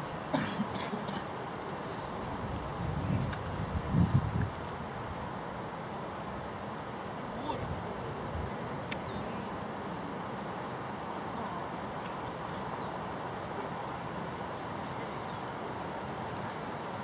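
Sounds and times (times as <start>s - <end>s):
outdoor rumble and hiss: 0.0s - 17.0s
faint click: 3.2s - 3.6s, 8.8s - 9.6s.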